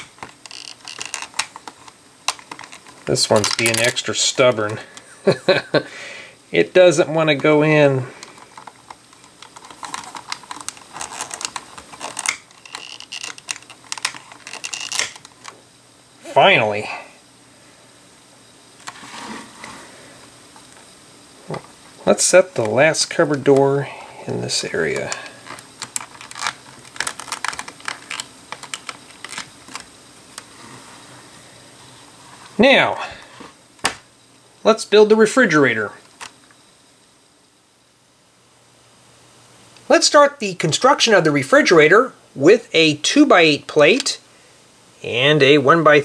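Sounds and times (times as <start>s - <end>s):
plastic pieces clicking and scraping: 0.0s - 5.0s, 8.1s - 15.6s, 24.9s - 29.9s.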